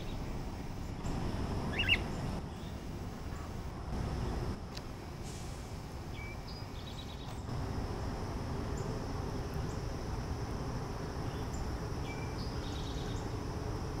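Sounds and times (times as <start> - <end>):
songbird song: 0.0 - 14.0
high insect drone: 5.8 - 14.0.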